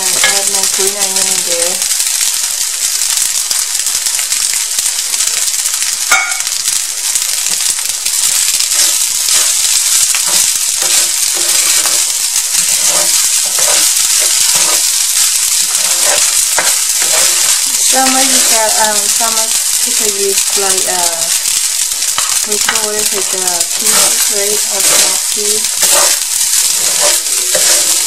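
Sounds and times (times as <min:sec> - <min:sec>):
rice sizzling in a pan: 0:00.0 - 0:28.0
utensils scraping a pan: 0:08.7 - 0:19.4, 0:22.2 - 0:28.0.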